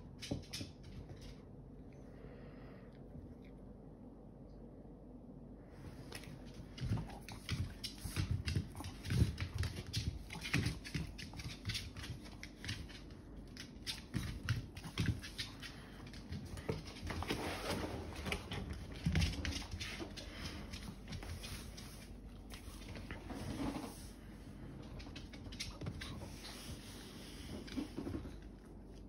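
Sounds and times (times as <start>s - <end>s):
dog claws clicking on floor: 6.1s - 17.3s, 18.2s - 23.2s, 24.8s - 26.8s.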